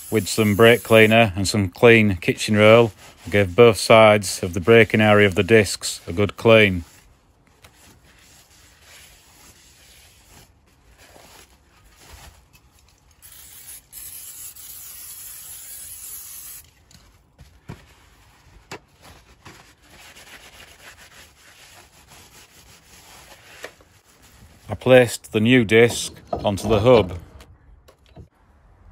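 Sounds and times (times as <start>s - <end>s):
aerosol can spraying: 0.0s - 1.1s, 13.2s - 16.7s
paper towel rubbing brake disc: 17.8s - 26.0s.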